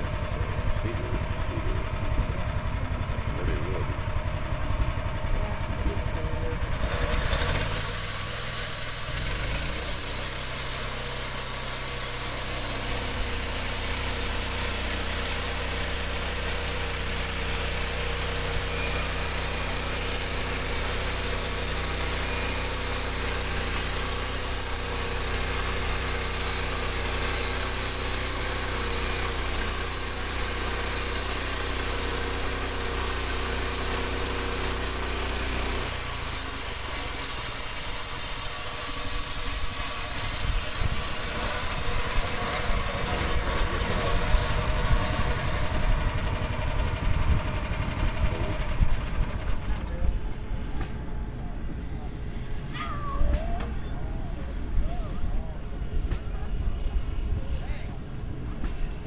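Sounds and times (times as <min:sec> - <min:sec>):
gasoline engine running: 0:00.0 - 0:52.8
band blade sawing wood: 0:06.7 - 0:45.4.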